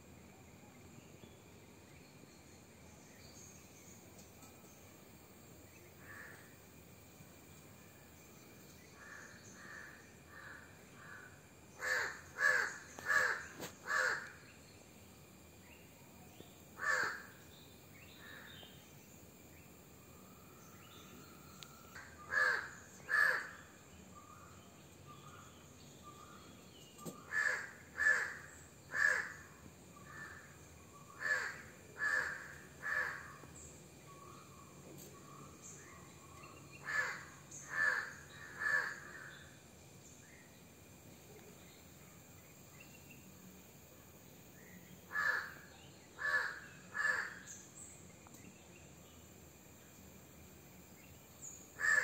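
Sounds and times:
crows cawing: 0:09.0 - 0:14.4, 0:16.8 - 0:17.3, 0:22.3 - 0:23.6, 0:27.3 - 0:30.5, 0:31.2 - 0:33.4, 0:36.8 - 0:39.3, 0:45.1 - 0:45.6, 0:46.2 - 0:47.5, 0:51.8 - 0:52.0.

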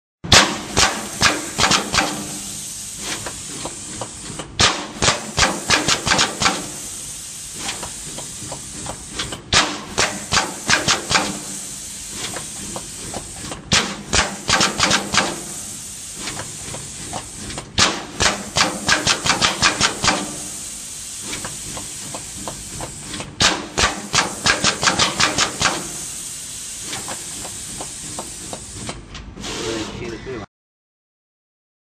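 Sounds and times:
machine hum and hiss: 0:00.3 - 0:30.5
rapid sharp machine clicks: 0:00.8 - 0:02.3, 0:05.0 - 0:06.8, 0:12.7 - 0:15.4, 0:18.2 - 0:20.2, 0:23.8 - 0:26.0.

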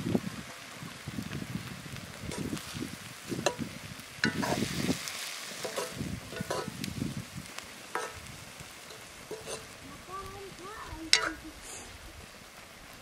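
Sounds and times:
vegetables sizzling in a wok: 0:00.0 - 0:13.0
metal ladle scraping a pan: 0:04.2 - 0:06.9, 0:07.9 - 0:09.8, 0:11.1 - 0:11.8.

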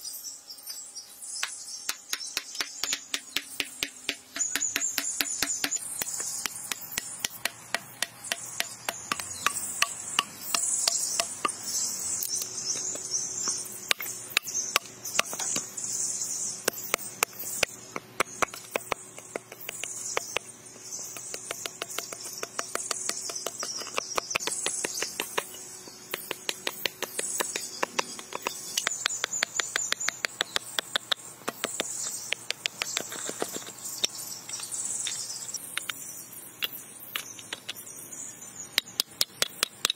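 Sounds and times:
insects chorus: 0:00.0 - 0:39.9
blade chopping wood: 0:01.4 - 0:11.6, 0:16.7 - 0:33.7.

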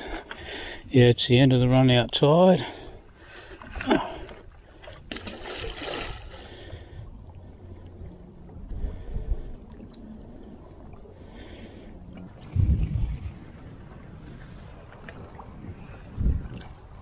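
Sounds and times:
lapping water: 0:03.2 - 0:08.3
handfuls splashing into water: 0:03.7 - 0:06.5
wind on microphone: 0:12.1 - 0:17.0.

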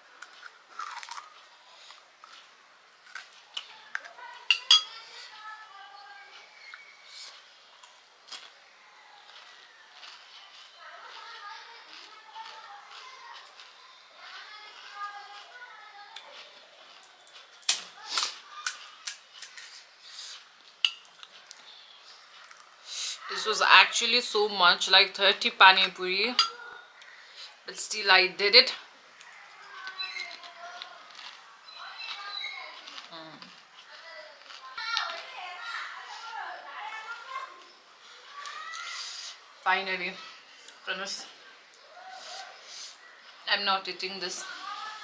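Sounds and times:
crunching and chewing: 0:00.0 - 0:23.0, 0:26.4 - 0:27.5, 0:28.8 - 0:39.6, 0:40.2 - 0:43.5
dishes and utensils clinking: 0:04.4 - 0:05.0, 0:20.8 - 0:21.2, 0:26.3 - 0:26.6.

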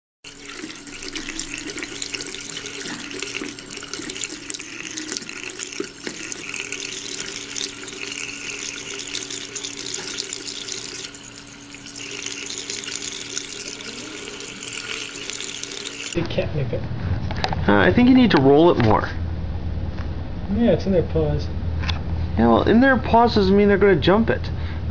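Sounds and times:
water running from faucet: 0:00.2 - 0:16.2.

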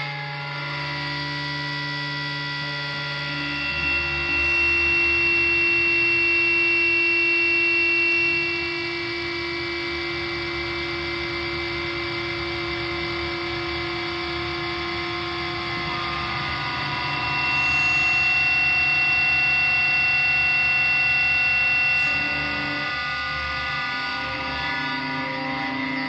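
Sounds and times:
drone music sustained tones: 0:00.0 - 0:26.0.

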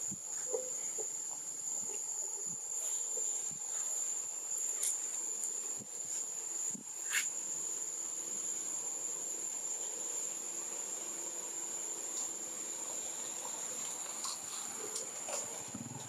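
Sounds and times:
insects buzzing: 0:00.0 - 0:16.0.

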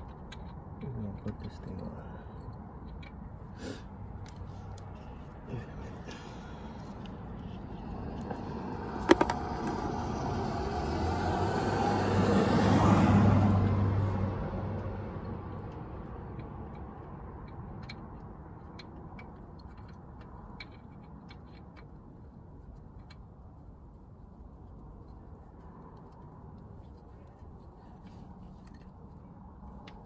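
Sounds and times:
car passing by: 0:07.6 - 0:15.4.

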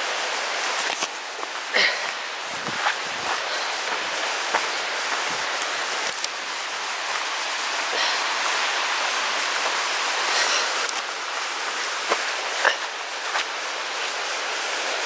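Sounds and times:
river rushing over rocks: 0:00.0 - 0:15.0
footsteps on gravel: 0:00.8 - 0:06.4, 0:10.4 - 0:14.2.

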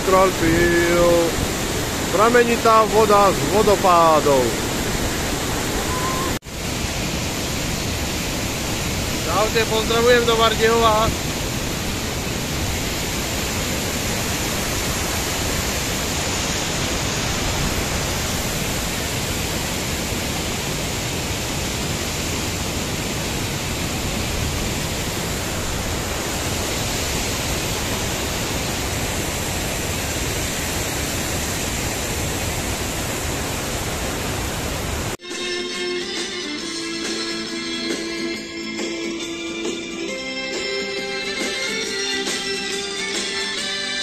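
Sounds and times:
waterfall rushing: 0:00.0 - 0:35.2.

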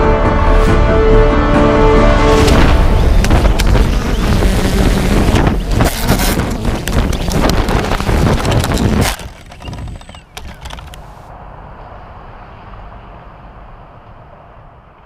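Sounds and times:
wind buffeting microphone: 0:02.5 - 0:11.0.

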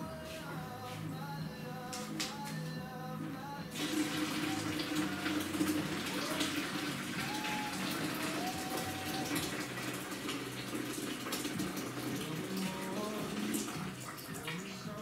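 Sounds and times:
water pouring into plastic bucket: 0:03.7 - 0:15.0.

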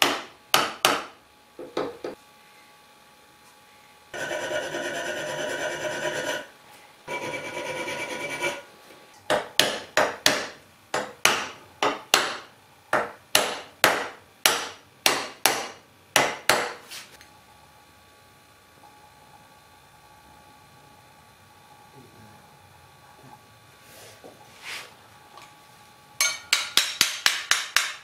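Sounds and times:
file scraping steel: 0:04.2 - 0:06.5, 0:07.1 - 0:08.7
hammer tapping steel: 0:26.2 - 0:28.0.

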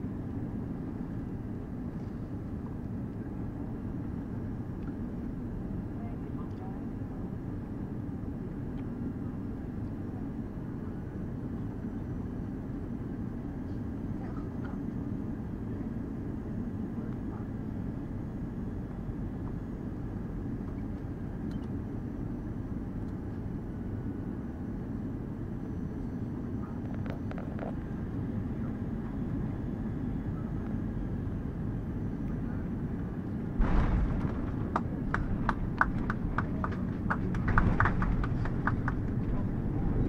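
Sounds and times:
airplane cabin engine rumble: 0:00.0 - 0:40.0
wheels touching down thump: 0:33.6 - 0:39.3
wheels knocking on runway: 0:33.6 - 0:39.5.

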